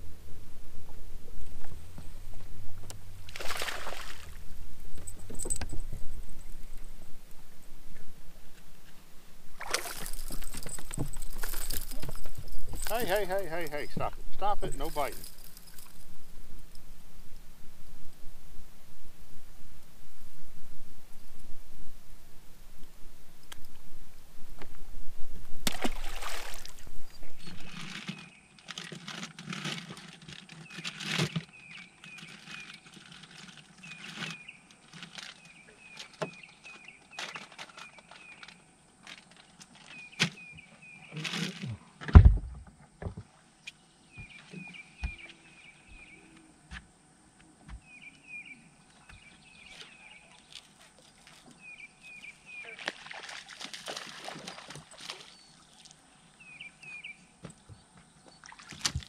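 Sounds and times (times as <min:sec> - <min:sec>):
heavy low thump: 0:42.1 - 0:42.7
bird chirping: 0:43.7 - 0:46.5, 0:47.8 - 0:50.6, 0:51.4 - 0:52.8, 0:55.3 - 0:58.5.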